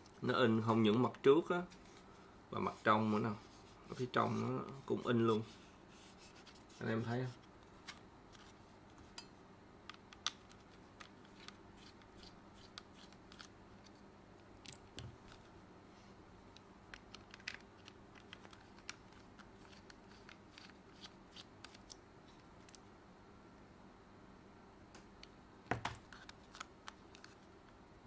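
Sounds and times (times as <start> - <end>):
faint steady hum: 0.0 - 28.0
plastic controller parts clicking: 16.6 - 20.8.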